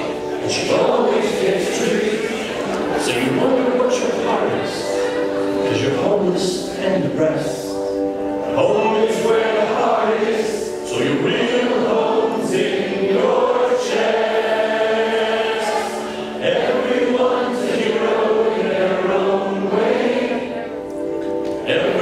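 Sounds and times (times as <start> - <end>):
backing music: 0.0 - 22.0
ensemble singing: 0.0 - 22.0.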